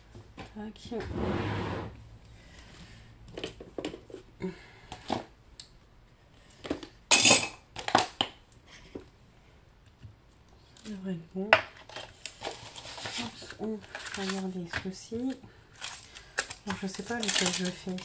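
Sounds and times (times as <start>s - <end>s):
rummaging handling noise: 11.7s - 18.0s.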